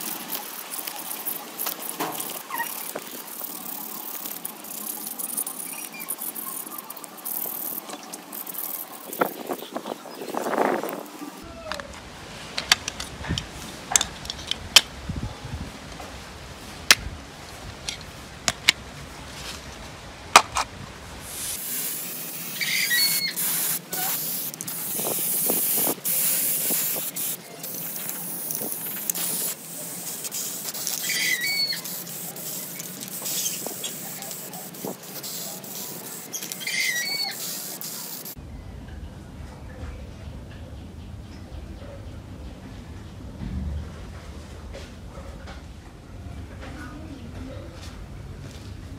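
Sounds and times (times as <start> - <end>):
aerosol spray can hissing: 21.3 - 38.4.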